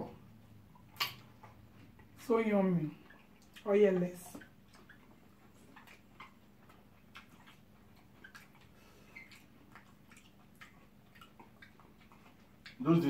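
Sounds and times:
faint steady hum: 0.0 - 13.0
mouths chewing food: 0.0 - 13.0.

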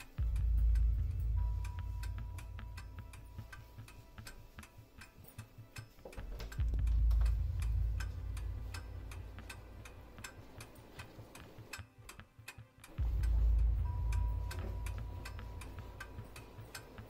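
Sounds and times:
clock ticking quickly: 0.0 - 17.0
deep low rumble: 6.6 - 9.8, 13.0 - 16.5.

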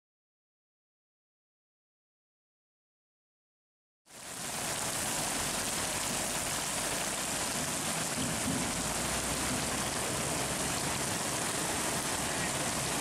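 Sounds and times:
heavy rain hissing: 4.1 - 13.0.

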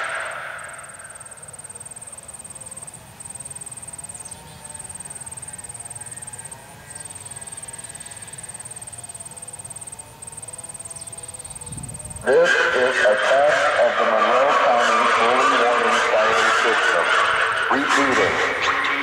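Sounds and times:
insect buzzing: 0.0 - 12.2
faint wavering siren: 0.0 - 19.0.

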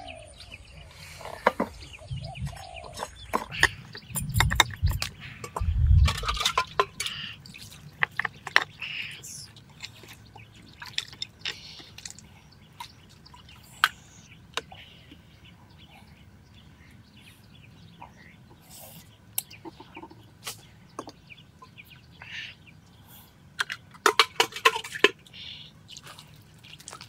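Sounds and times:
sharp knocks and clicks: 3.0 - 7.0
water dripping and splashing: 25.9 - 27.0.

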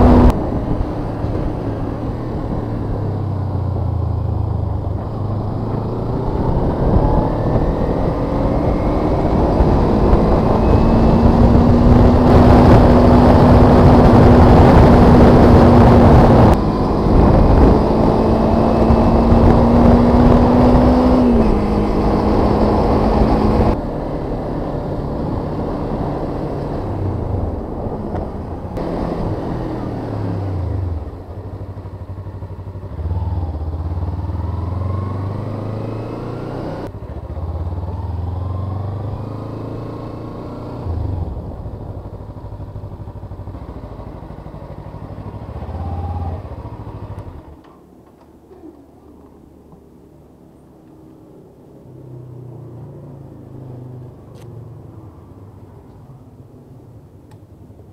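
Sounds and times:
wind rush: 0.0 - 31.1
motorcycle engine: 0.0 - 49.3.

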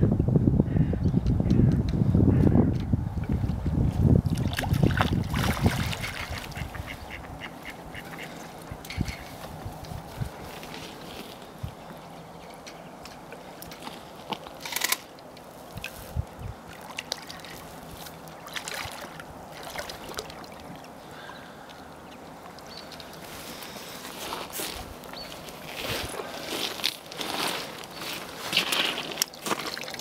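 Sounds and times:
fish thrashing and splashing water: 4.3 - 6.9, 16.6 - 21.3, 26.1 - 30.0.

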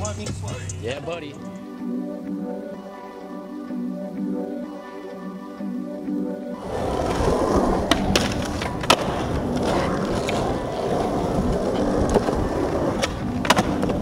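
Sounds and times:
skateboard wheels rolling on asphalt: 6.6 - 14.0.

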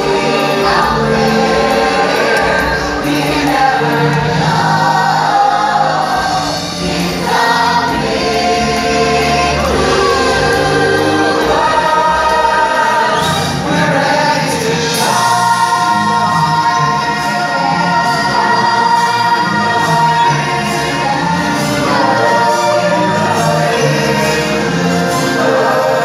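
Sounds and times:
orchestral backing track: 0.0 - 26.0
voices singing together: 0.0 - 26.0.

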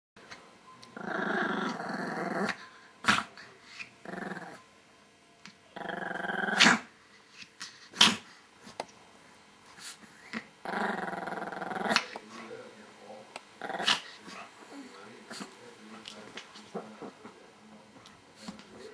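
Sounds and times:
small dogs growling: 0.9 - 4.6, 5.8 - 6.9, 9.8 - 12.6, 13.4 - 17.4.

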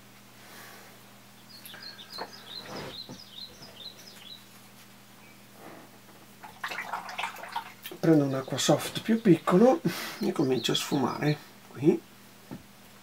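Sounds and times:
small bird chirping: 1.4 - 4.6, 7.9 - 11.4.

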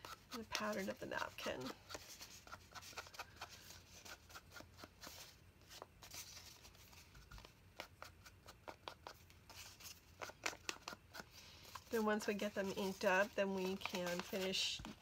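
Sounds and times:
foam applicator tapping paper: 10.1 - 15.0.

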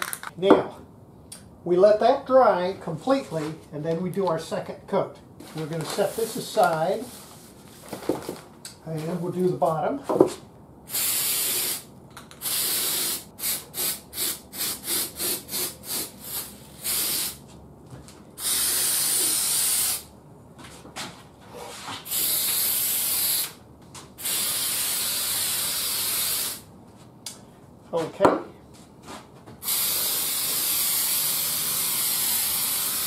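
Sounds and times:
aerosol spray can hissing: 10.9 - 11.8, 12.4 - 17.4, 18.4 - 20.1, 22.1 - 23.6, 24.2 - 26.6, 29.6 - 33.0.

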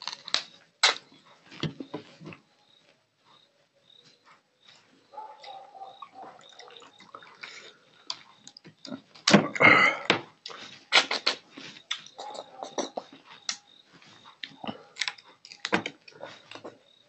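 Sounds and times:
wet smacks of eating: 0.8 - 1.1, 5.4 - 9.4, 10.4 - 12.4.

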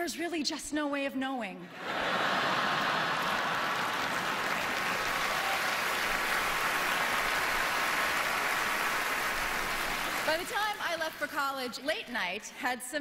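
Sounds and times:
audience laughing: 1.7 - 4.8
audience applauding: 1.9 - 10.9.

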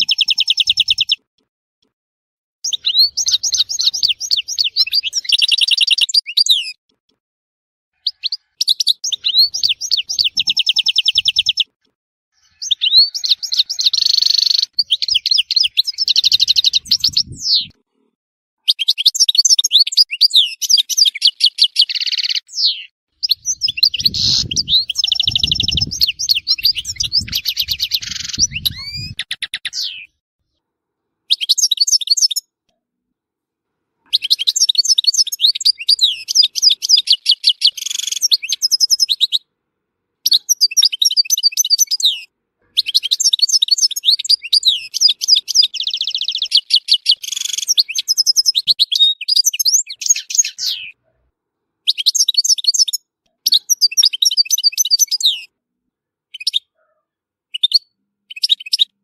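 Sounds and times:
finch singing: 0.0 - 1.2, 2.6 - 6.8, 8.0 - 11.7, 12.4 - 17.8, 18.7 - 30.1, 31.3 - 32.4, 34.1 - 39.4, 40.3 - 51.0, 51.9 - 55.5, 56.3 - 56.8.

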